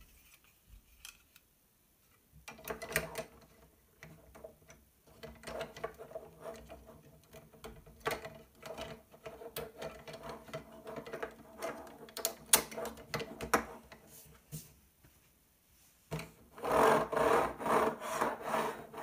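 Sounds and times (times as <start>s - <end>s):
plastic parts clicking and rattling: 2.4s - 14.0s.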